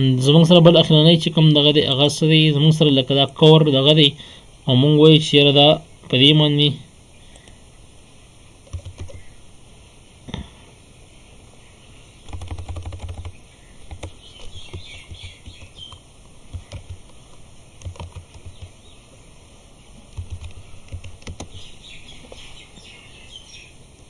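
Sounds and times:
keyboard typing: 8.6 - 9.2, 12.2 - 18.8, 20.1 - 22.5.

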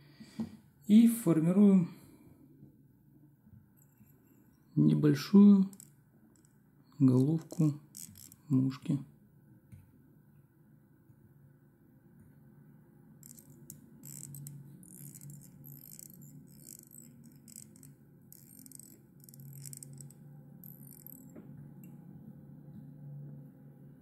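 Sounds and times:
low steady hum: 0.0 - 24.0
thread wrapping rasps: 7.4 - 8.6, 13.2 - 21.4.

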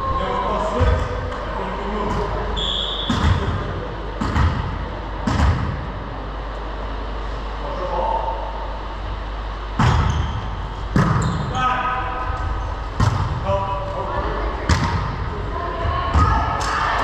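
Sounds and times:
voices in background: 13.4 - 17.0.

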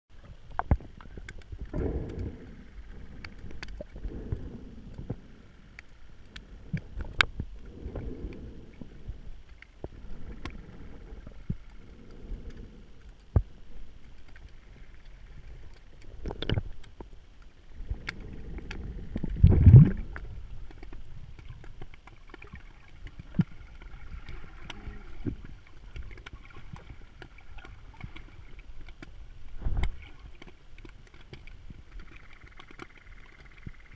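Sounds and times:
underwater water swishes: 0.1 - 33.9
low rumble: 1.4 - 16.7, 17.6 - 20.8.

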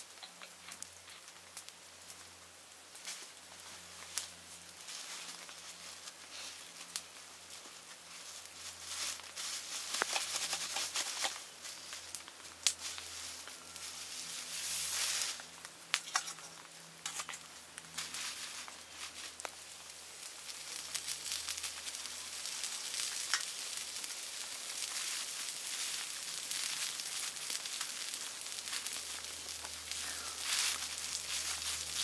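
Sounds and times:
campfire crackling and popping: 0.0 - 32.0
plastic bag rustling: 8.2 - 12.1, 12.8 - 19.8, 20.4 - 32.0.

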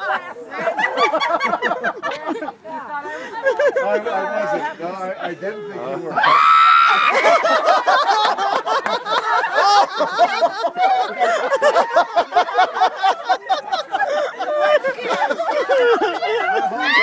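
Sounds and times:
people laughing: 0.0 - 17.0
high-pitched squeal of laughter: 16.5 - 17.0.

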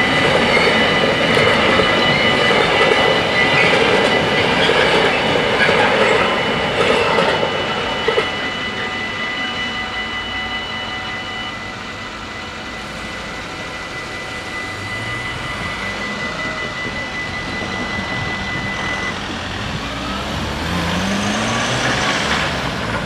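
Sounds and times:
level-crossing bells ringing: 0.0 - 23.0
car engine rising in pitch: 13.0 - 23.0.

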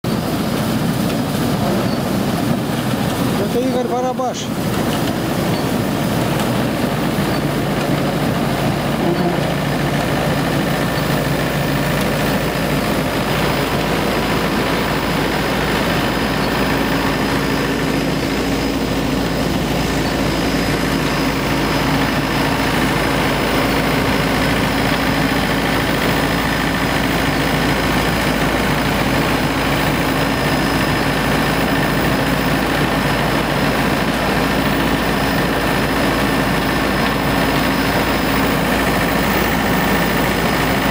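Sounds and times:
engine running with mechanical drone: 0.0 - 40.9.

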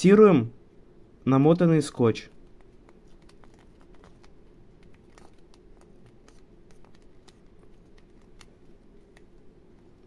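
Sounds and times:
low steady hum: 0.0 - 10.0
tape clicks and crackles: 2.3 - 10.0.

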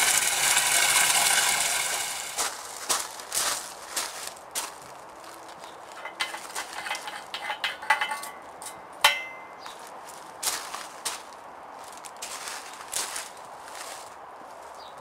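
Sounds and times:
metal parts clicking: 6.0 - 9.5
ringing metal clink: 6.0 - 9.7.

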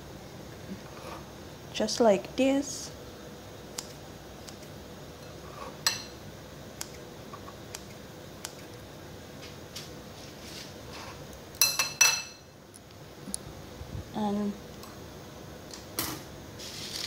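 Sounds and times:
scissors snipping: 3.8 - 4.7, 7.7 - 8.8.

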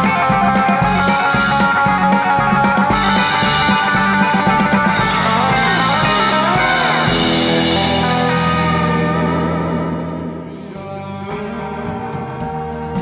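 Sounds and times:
held guitar chord with gliding notes: 0.0 - 13.0
rock band music: 0.0 - 13.0.

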